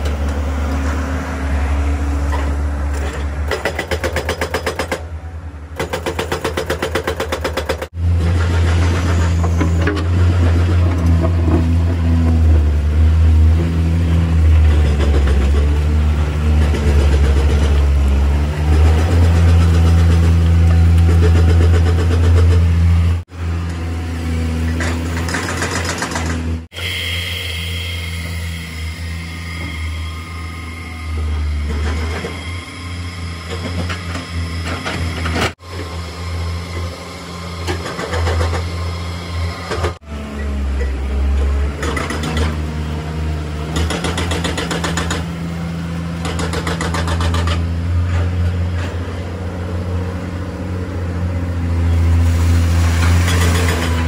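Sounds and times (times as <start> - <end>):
excavator diesel engine under load: 0.0 - 4.4, 7.8 - 54.0
clatter and rattle: 5.8 - 11.7, 24.8 - 26.6.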